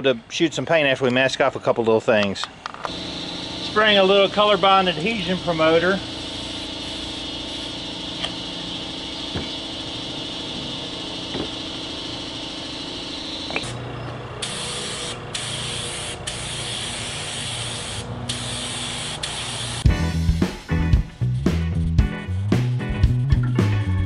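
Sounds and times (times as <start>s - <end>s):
aerosol spray can hissing: 2.9s - 13.7s, 14.4s - 19.9s
paint spray gun hissing: 2.9s - 13.8s, 14.4s - 19.9s.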